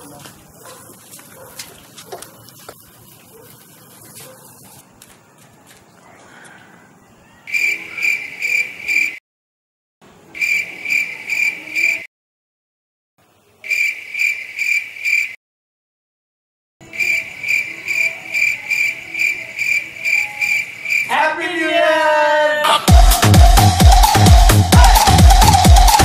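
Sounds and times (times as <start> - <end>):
cricket chirping: 7.0 - 9.2, 10.3 - 12.0, 13.6 - 15.4, 16.8 - 21.1.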